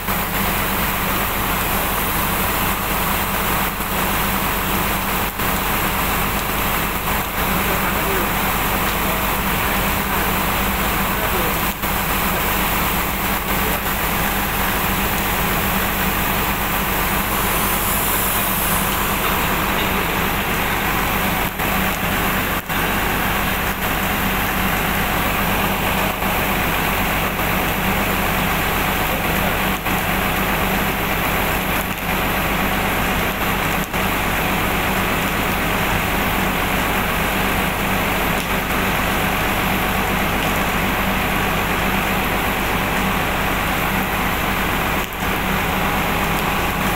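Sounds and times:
machine drone with low hum: 0.0s - 46.9s
even hiss: 16.8s - 20.4s.

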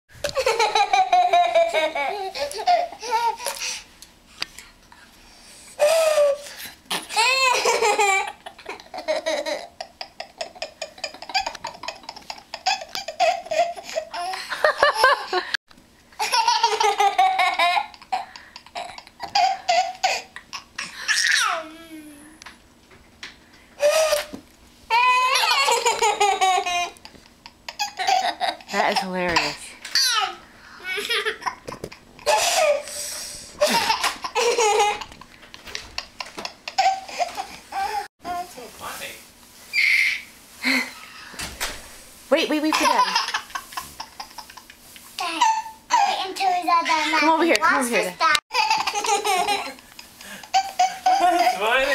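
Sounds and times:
baby and boy giggling: 0.2s - 3.6s, 5.8s - 15.6s, 16.2s - 21.8s, 24.9s - 32.9s, 33.5s - 38.1s, 42.7s - 47.3s, 48.5s - 51.9s.

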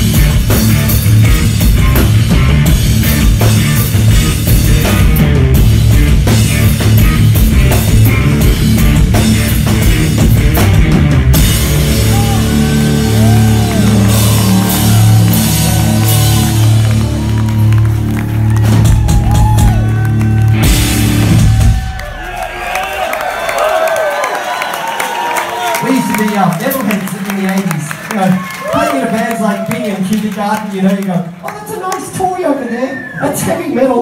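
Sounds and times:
rock band playing live: 0.0s - 23.1s.

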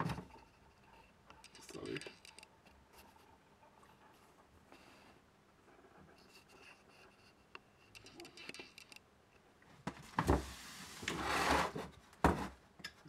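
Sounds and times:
small clicks: 7.5s - 9.1s.

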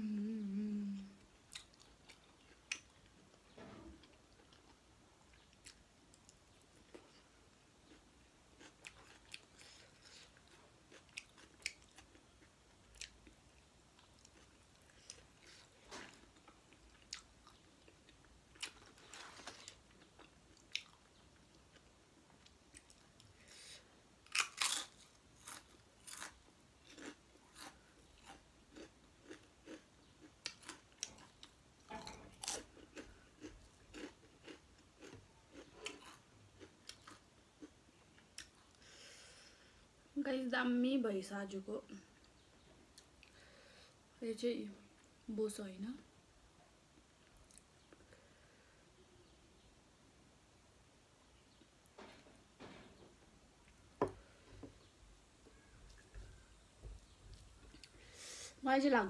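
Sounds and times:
person chewing with lip smacks: 32.4s - 36.2s.

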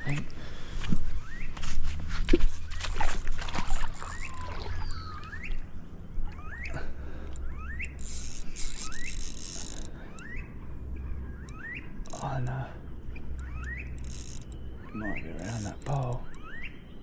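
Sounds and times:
fishing reel squeaking: 2.2s - 5.6s, 6.2s - 12.6s, 13.3s - 16.5s.

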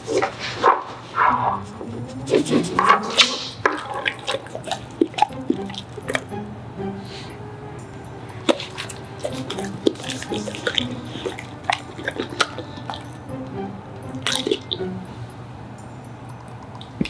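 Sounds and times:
light background music: 1.2s - 17.0s
dog licking lips: 8.5s - 13.2s.

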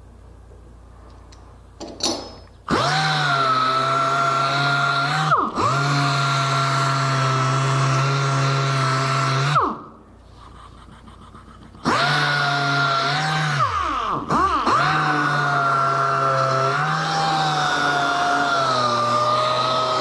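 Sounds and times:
orbit sander whining: 2.7s - 9.8s, 11.2s - 20.0s.

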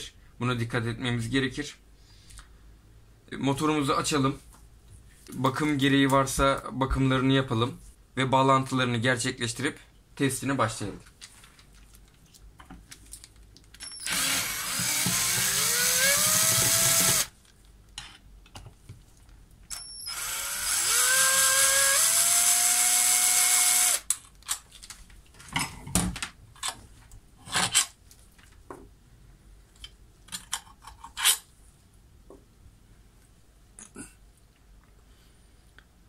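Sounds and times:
cordless drill motor whine: 13.8s - 17.3s, 19.7s - 24.0s.

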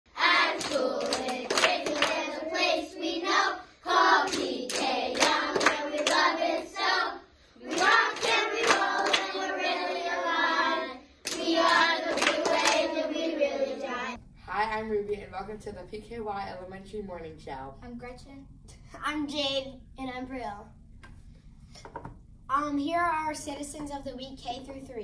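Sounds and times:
children singing together: 0.1s - 14.2s
sharp hand claps: 0.6s - 2.2s, 4.2s - 6.2s, 7.7s - 9.3s, 11.2s - 12.8s.

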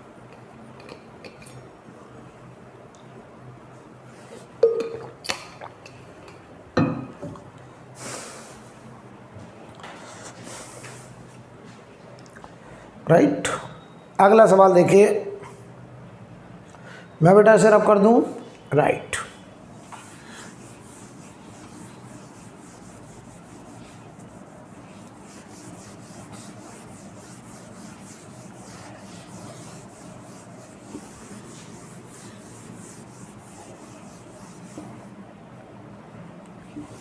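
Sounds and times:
eraser rubbing on whiteboard: 19.9s - 35.1s.

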